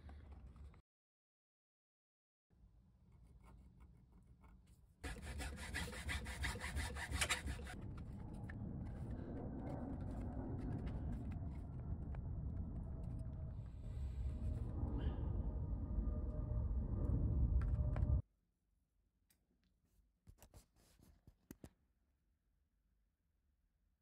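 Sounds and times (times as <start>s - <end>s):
low rumble: 7.7s - 18.2s.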